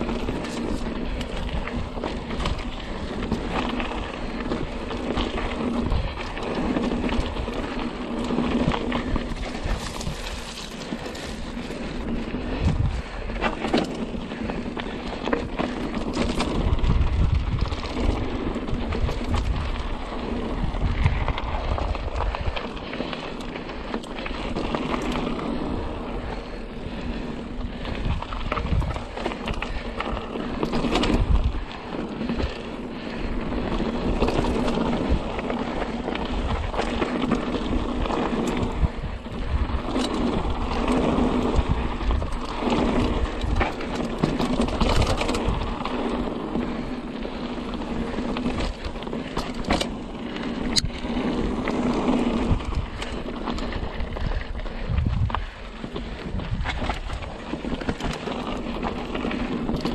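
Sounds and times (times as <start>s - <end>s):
bike knocking and rattling: 0.0s - 59.9s
wind buffeting microphone: 0.0s - 59.9s.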